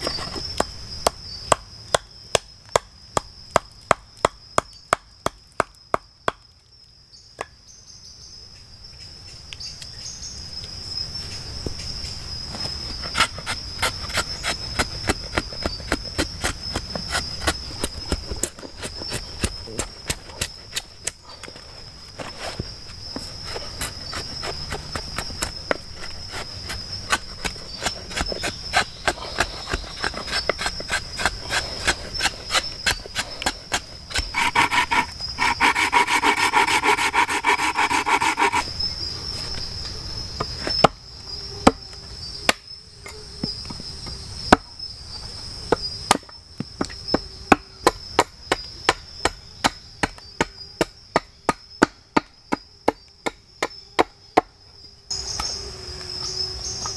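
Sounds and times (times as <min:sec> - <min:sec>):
hatchet chopping wood: 0:00.0 - 0:06.5, 0:12.6 - 0:21.2, 0:23.5 - 0:38.7, 0:45.7 - 0:54.5
high insect drone: 0:00.0 - 0:56.9.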